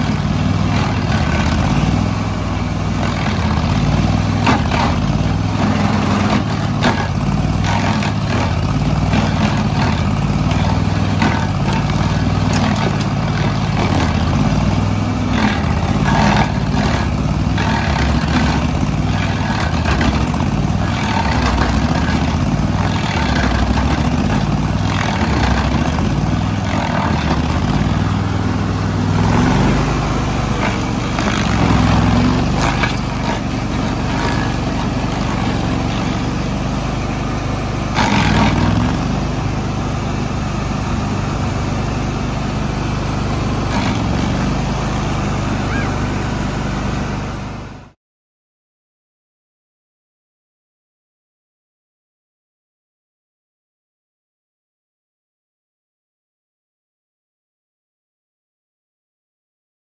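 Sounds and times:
stump grinder engine running: 0.0s - 48.0s.

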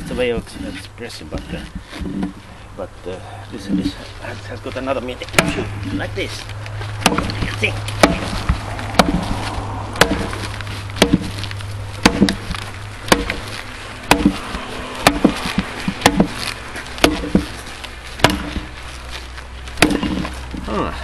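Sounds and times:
axe chopping firewood: 5.3s - 6.1s, 6.9s - 18.8s, 19.7s - 20.8s.

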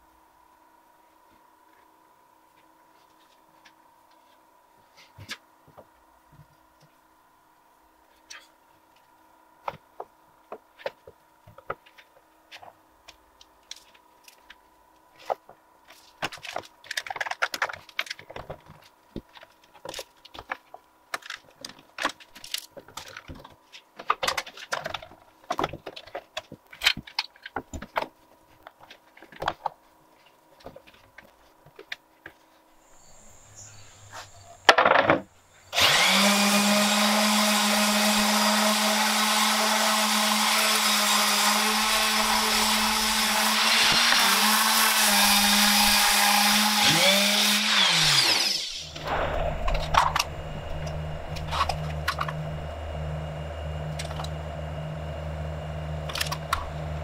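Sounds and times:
orbit sander running: 35.7s - 57.0s
short loud burst: 48.3s - 53.1s.

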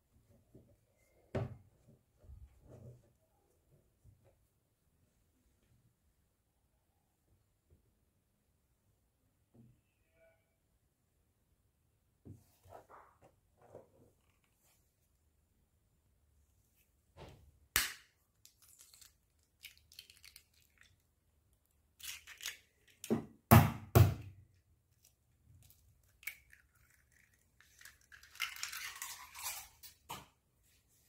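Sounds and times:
eggs cracking on a bowl: 17.8s - 21.1s, 25.7s - 29.8s
crackle of eggshell: 18.4s - 23.0s, 25.0s - 29.9s.

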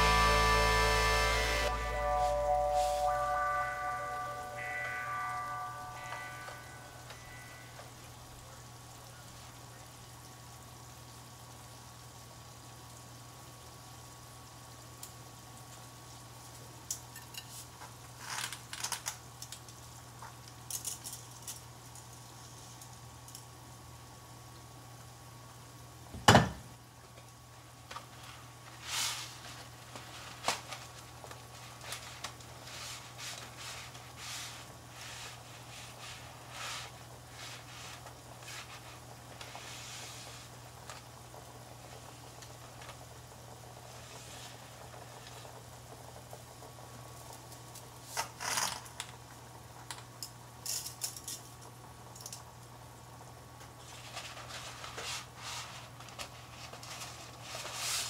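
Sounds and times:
low hum: 0.0s - 7.8s.

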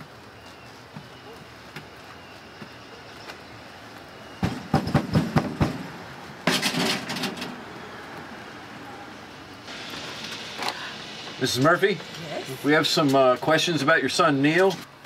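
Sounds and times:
loud hissing crash: 9.6s - 13.8s.

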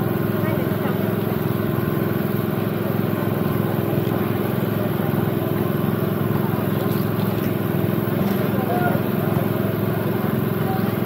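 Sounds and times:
crowd chatter: 0.0s - 11.0s
small engine running: 0.0s - 11.0s.

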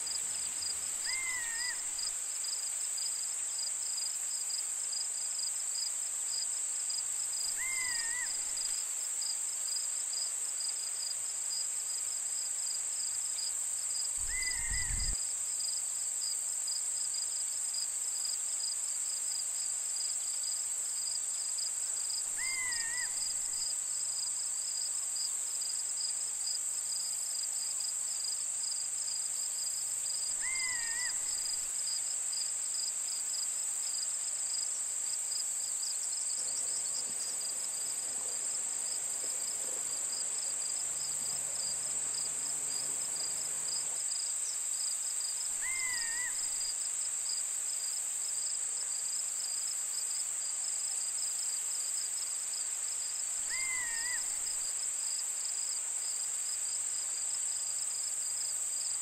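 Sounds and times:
whistled bird call: 14.2s - 15.1s
high insect chirring: 14.2s - 15.2s.

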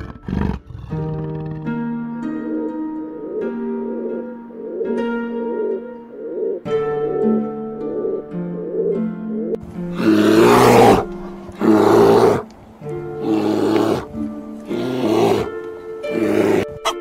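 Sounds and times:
background music: 0.0s - 17.0s
bear roaring: 9.9s - 12.5s, 13.1s - 16.8s.

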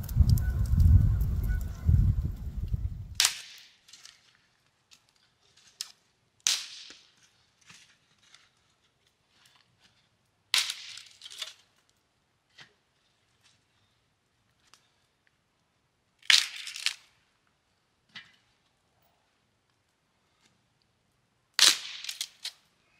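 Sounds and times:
dry branch snapping: 0.0s - 4.2s.

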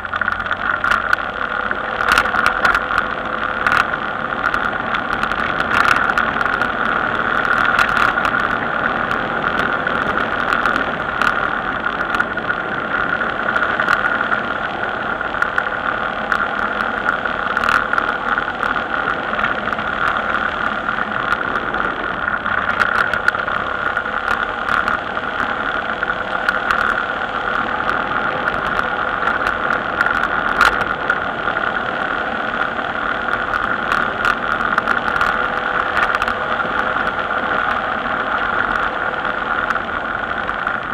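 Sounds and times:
vehicle road noise: 0.0s - 40.9s.

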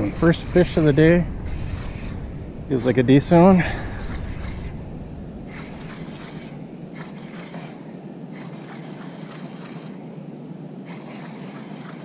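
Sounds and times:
fishing reel whirring: 0.0s - 10.1s, 10.8s - 12.0s
water noise: 0.0s - 12.0s
wind: 0.0s - 12.0s.

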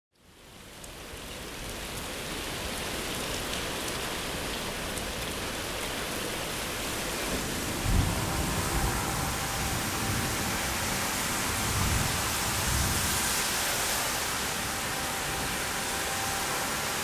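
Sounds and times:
raindrop ticks: 0.2s - 2.2s, 2.9s - 6.4s
steady rain falling: 0.2s - 17.0s.

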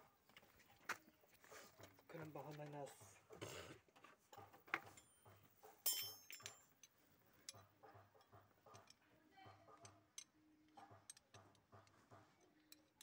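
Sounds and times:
sharp metallic clink: 5.8s - 6.8s
metal tools clicking: 5.8s - 9.0s, 9.8s - 13.0s.

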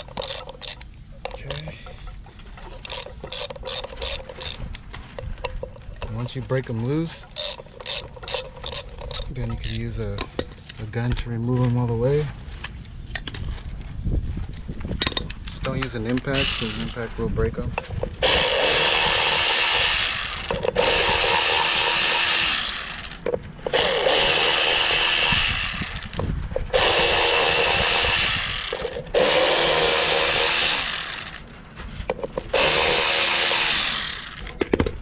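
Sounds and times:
electric drill spinning out bolts: 0.0s - 1.7s, 2.6s - 4.7s, 7.3s - 9.9s, 16.1s - 17.0s, 18.2s - 31.5s, 32.2s - 34.8s.

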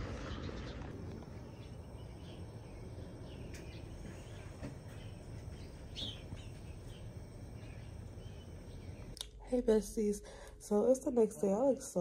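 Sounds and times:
small birds chirping: 0.0s - 9.2s
low outdoor rumble: 0.0s - 12.0s.

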